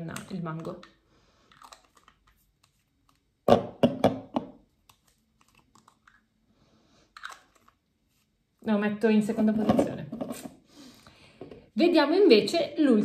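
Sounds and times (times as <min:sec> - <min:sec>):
plastic bottles knocking together: 0:03.5 - 0:04.6.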